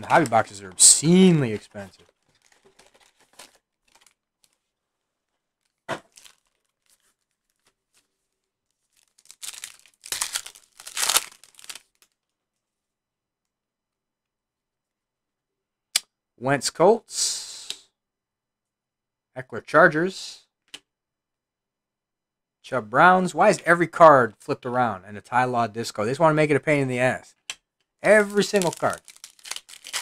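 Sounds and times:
foil wrappers crinkling and tearing: 0:00.1 - 0:04.7, 0:05.6 - 0:08.0, 0:08.7 - 0:12.2, 0:28.1 - 0:30.0.

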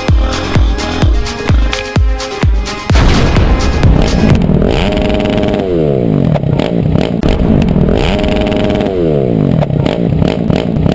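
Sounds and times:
motorcycle engine revving: 0:03.6 - 0:10.9.

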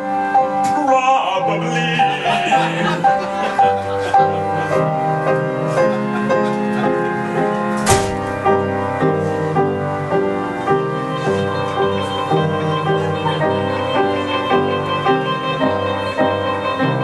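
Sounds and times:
electric guitar chords: 0:00.0 - 0:17.0
piano: 0:00.0 - 0:17.0
short sharp crash: 0:07.8 - 0:08.6.

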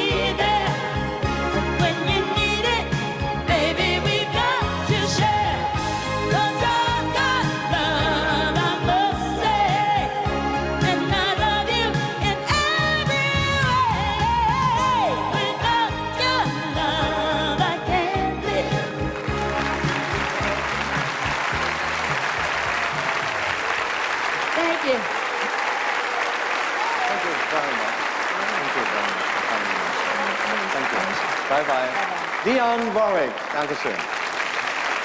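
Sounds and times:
woman singing pop song live: 0:00.0 - 0:19.2
audience applause: 0:19.2 - 0:35.0.

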